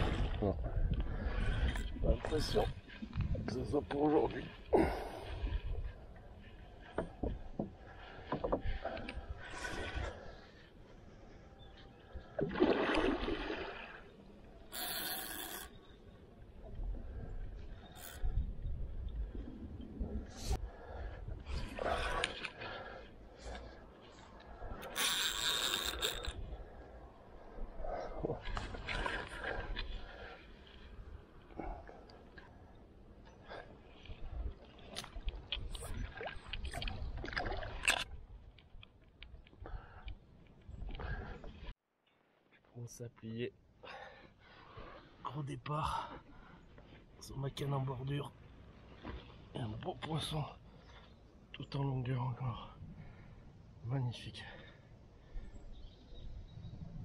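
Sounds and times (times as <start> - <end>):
low wind rumble: 0.0 - 12.4, 16.0 - 24.9, 54.7 - 57.0
splash in water: 12.4 - 14.0.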